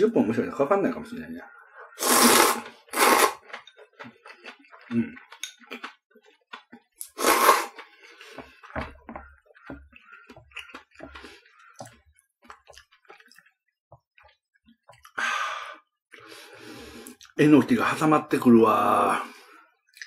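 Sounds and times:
chewing: 1.5s - 15.2s
loud slurping: 1.8s - 3.6s, 7.0s - 8.4s.

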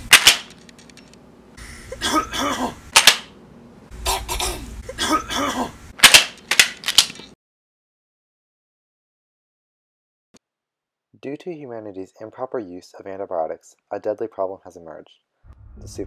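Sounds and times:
person coughing: 1.9s - 2.8s, 4.0s - 5.8s.

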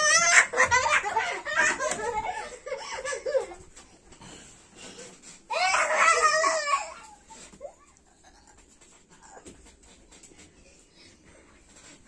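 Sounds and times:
children laughing: 0.0s - 3.9s.

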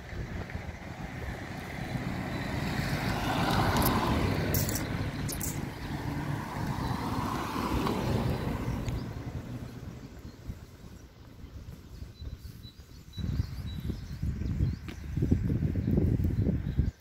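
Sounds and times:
car driving past: 0.9s - 10.2s
sharp clicks: 3.6s - 5.6s.

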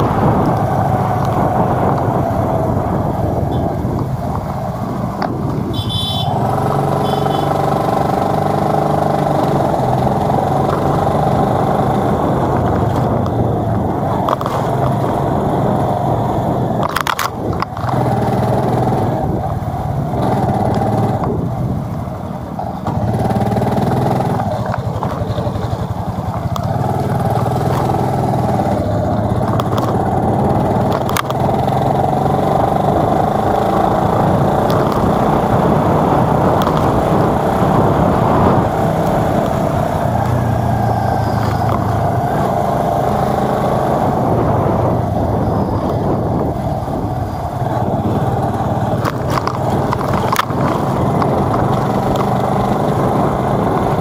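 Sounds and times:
motorbike engine running: 0.0s - 54.0s
road and wind noise: 0.0s - 54.0s
sharp clicks: 48.4s - 52.9s.

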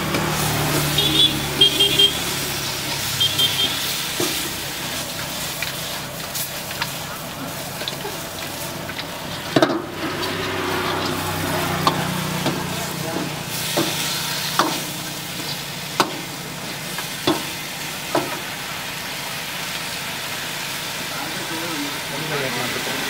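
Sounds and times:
food sizzling in a pan: 0.0s - 23.0s
metal ladle clanking and scraping: 2.8s - 16.3s.

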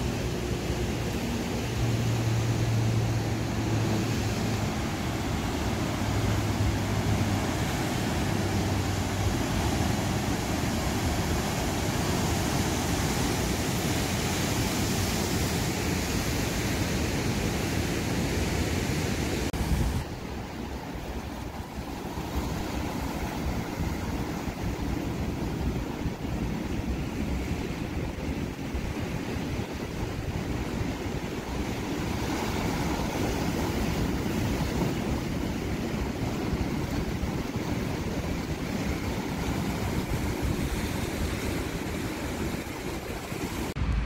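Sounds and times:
low engine hum: 0.0s - 18.3s
ocean surf rushing: 0.0s - 44.0s
wind on microphone: 0.0s - 44.0s.

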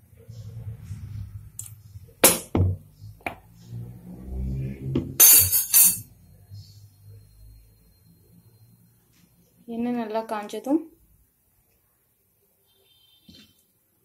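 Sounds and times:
rattling clinks: 5.2s - 6.1s.

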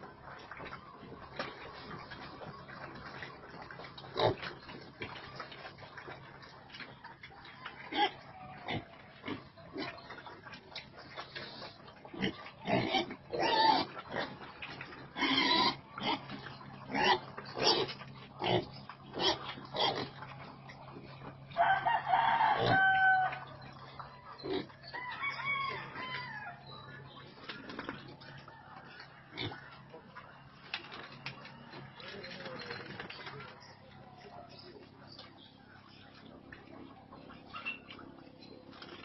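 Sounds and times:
pigs grunting and squealing: 0.0s - 21.6s, 22.3s - 25.0s, 25.8s - 30.6s.

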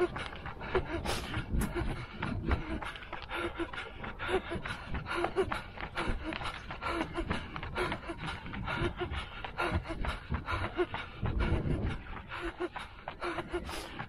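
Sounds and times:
runner panting hard: 0.0s - 14.0s.

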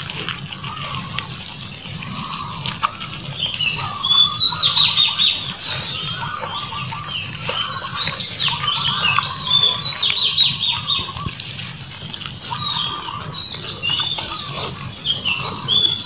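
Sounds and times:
puppies chewing and snuffling: 0.0s - 16.0s.

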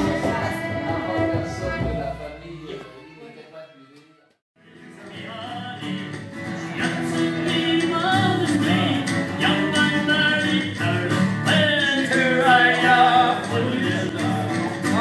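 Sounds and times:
acoustic guitar strummed: 4.6s - 15.0s
folk melody line: 4.7s - 15.0s.

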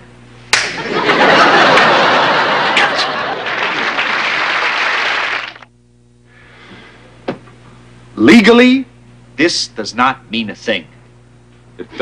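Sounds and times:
studio audience laughing: 0.6s - 5.6s.

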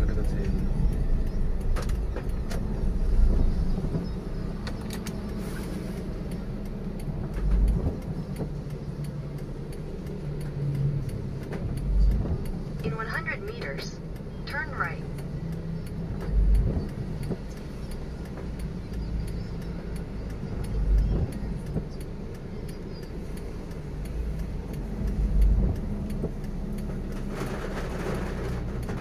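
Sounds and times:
engine and tyre drone: 0.0s - 29.0s
tyre hiss on wet road: 5.4s - 6.1s.

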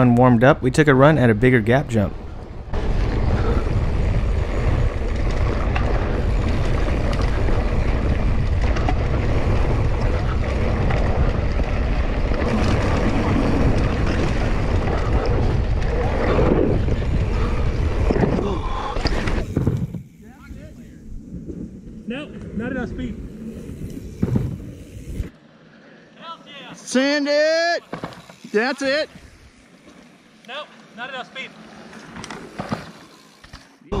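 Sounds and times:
bike and tyres rattling: 1.0s - 34.0s
wind buffeting microphone: 1.8s - 25.3s.

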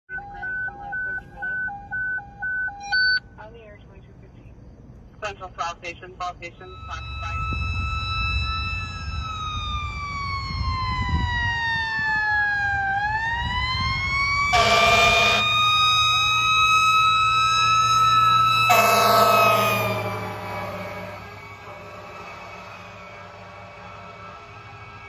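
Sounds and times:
truck engine rumbling: 6.5s - 25.0s
second siren wailing: 6.7s - 25.0s
air horn blasts: 14.5s - 15.6s, 18.6s - 23.4s.

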